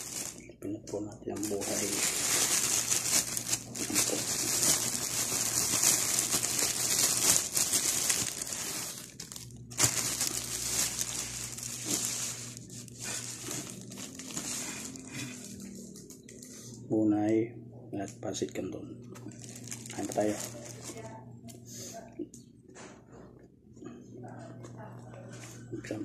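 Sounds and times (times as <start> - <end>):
plastic bag crinkling: 0.0 - 16.8, 18.4 - 21.3.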